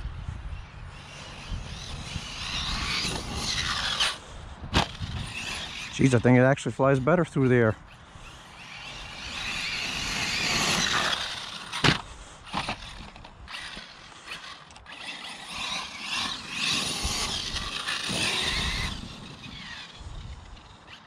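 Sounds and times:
electric motor whining: 0:00.6 - 0:06.4, 0:07.8 - 0:21.0.

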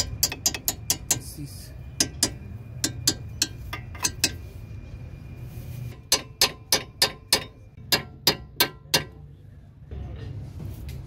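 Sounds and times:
hammer tapping on metal: 0:00.0 - 0:01.4, 0:02.0 - 0:04.5, 0:05.9 - 0:09.2.

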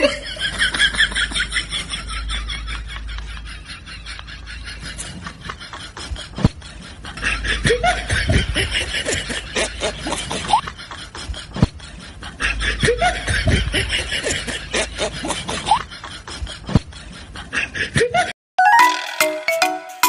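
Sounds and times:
person snickering and chuckling: 0:00.0 - 0:00.4, 0:03.2 - 0:18.3.

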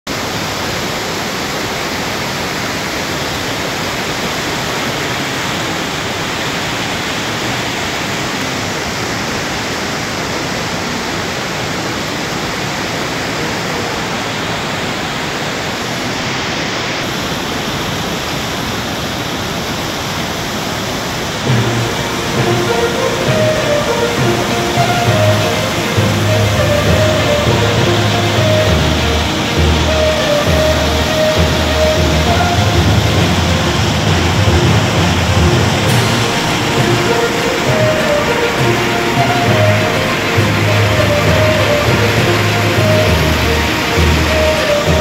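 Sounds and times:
floodwater rushing: 0:00.0 - 0:45.0
background music: 0:21.4 - 0:45.0.

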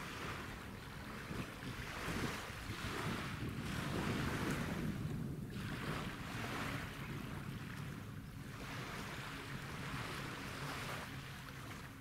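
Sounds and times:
small waves washing in: 0:00.0 - 0:12.0
wind rumble on microphone: 0:00.0 - 0:12.0.

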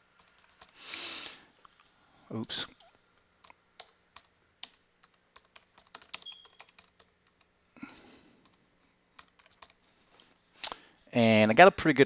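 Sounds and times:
keyboard typing: 0:00.2 - 0:00.8, 0:02.8 - 0:07.5, 0:09.2 - 0:09.9.

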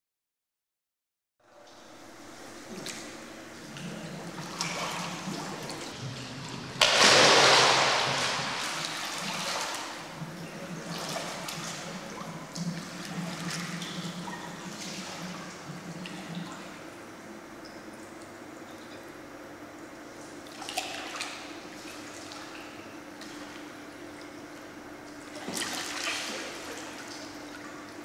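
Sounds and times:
water sloshing and splashing: 0:01.7 - 0:17.0, 0:19.8 - 0:28.0
person splashing into pool: 0:06.8 - 0:10.0.

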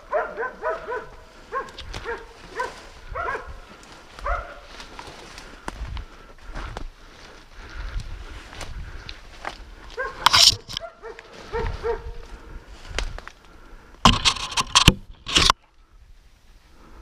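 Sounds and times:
dogs barking and yelping: 0:00.0 - 0:04.9, 0:09.8 - 0:12.3
brush scraping against camera: 0:10.2 - 0:10.9, 0:14.0 - 0:15.6.

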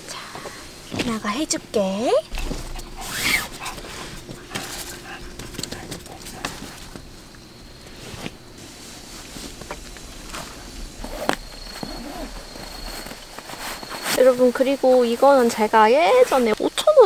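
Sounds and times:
faint steady high tone: 0:09.0 - 0:17.0.

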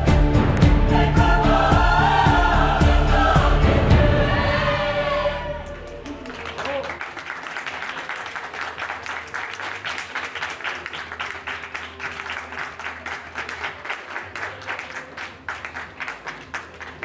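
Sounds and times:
audience applauding: 0:05.5 - 0:17.0.

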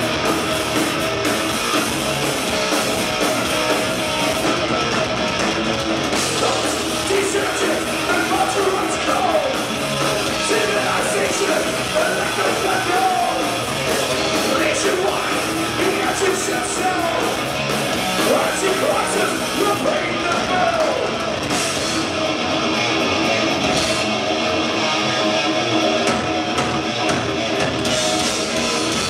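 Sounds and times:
bass guitar: 0:00.0 - 0:29.0
distorted electric guitars: 0:00.0 - 0:29.0
drum kit: 0:00.0 - 0:29.0
singer shouting vocals: 0:06.4 - 0:09.7, 0:10.3 - 0:17.4, 0:18.2 - 0:21.4.

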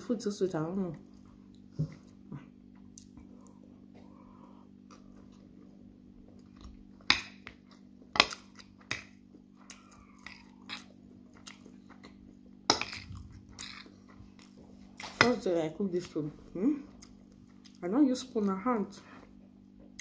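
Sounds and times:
chewing: 0:07.5 - 0:15.1.

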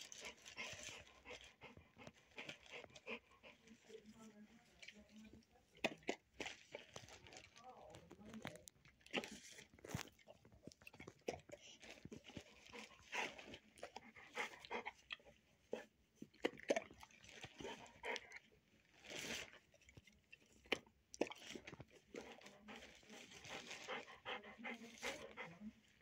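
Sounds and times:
dog panting: 0:00.0 - 0:04.8, 0:11.5 - 0:16.0, 0:17.5 - 0:18.4, 0:21.4 - 0:26.0.

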